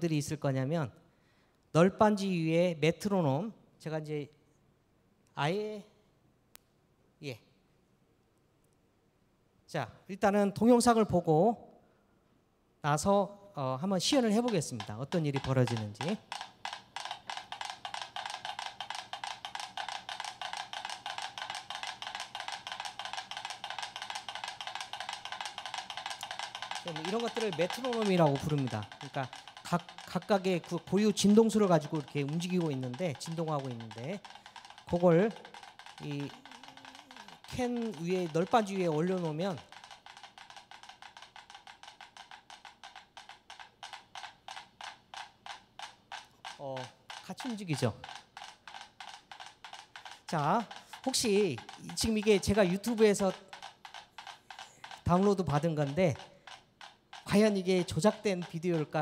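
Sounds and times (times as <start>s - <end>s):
metronomes ticking: 13.9s - 59.0s.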